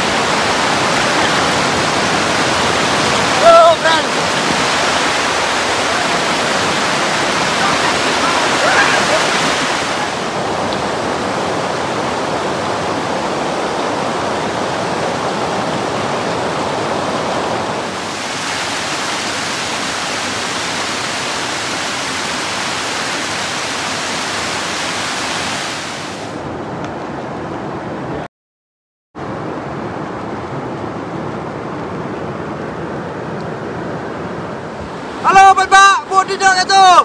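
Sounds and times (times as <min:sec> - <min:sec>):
water splashing down cascade: 0:00.0 - 0:10.3, 0:17.9 - 0:26.2
river water rushing over rock: 0:00.0 - 0:26.4, 0:29.2 - 0:37.0.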